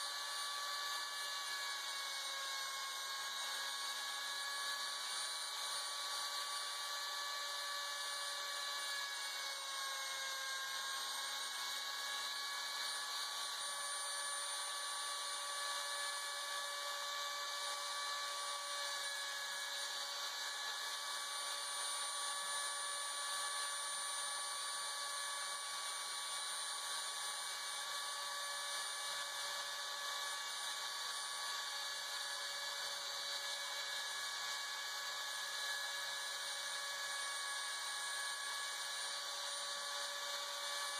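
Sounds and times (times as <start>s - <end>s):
spindle motor high whine: 0.0s - 40.9s.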